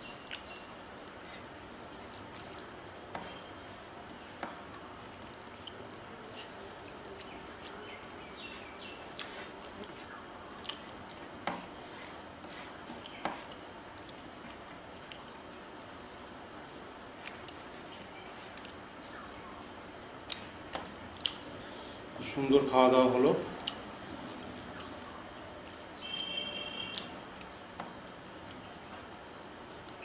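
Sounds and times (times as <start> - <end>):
fingers squishing food: 17.1 - 21.5.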